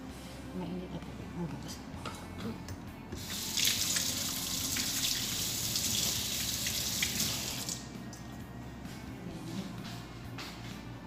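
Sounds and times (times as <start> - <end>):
tap water splashing into sink: 3.2 - 7.8.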